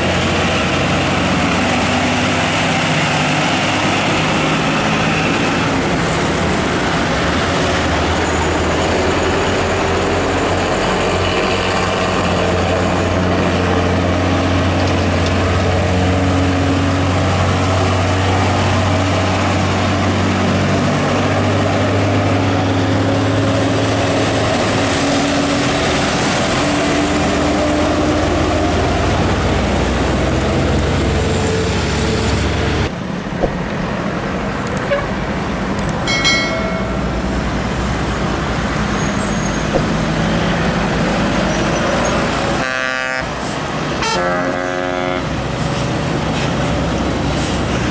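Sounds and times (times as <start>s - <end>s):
diesel trucks accelerating: 0.0s - 47.9s
road traffic: 0.0s - 47.9s
horn toot: 42.6s - 43.4s, 44.0s - 45.3s.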